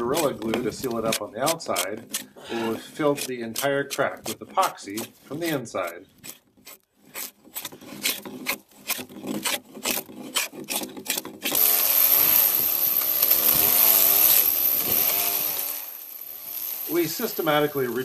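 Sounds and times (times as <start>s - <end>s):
drawknife scraping wood: 0.0s - 11.6s
chainsaw cutting wood: 0.0s - 18.0s.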